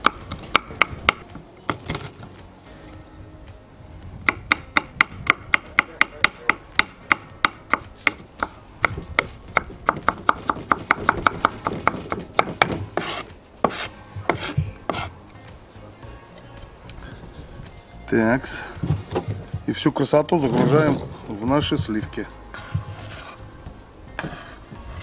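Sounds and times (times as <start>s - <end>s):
knife chopping on wooden board: 4.3s - 15.1s
knife blade scraping board: 13.0s - 15.1s, 22.8s - 23.4s.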